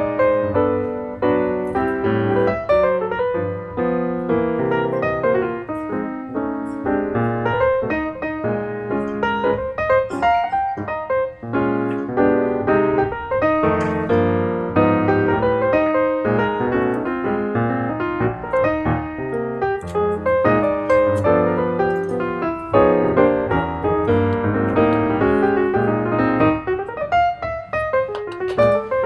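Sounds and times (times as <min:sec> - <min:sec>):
piano music: 0:00.0 - 0:29.0.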